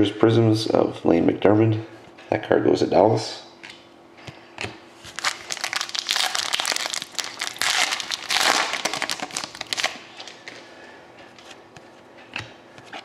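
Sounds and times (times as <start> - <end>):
foil wrapper tearing and crinkling: 5.1 - 10.4.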